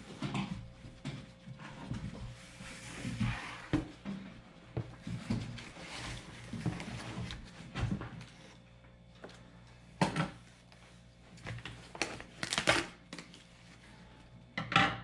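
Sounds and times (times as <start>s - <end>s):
packaging rustling: 11.5s - 13.4s.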